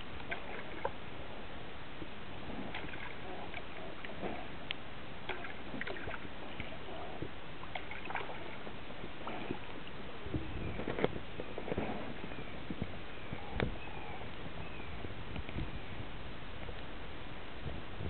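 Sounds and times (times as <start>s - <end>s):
water sloshing and dripping: 0.0s - 1.0s, 2.5s - 4.6s, 5.2s - 10.0s
clicks along the hull: 10.8s - 12.9s.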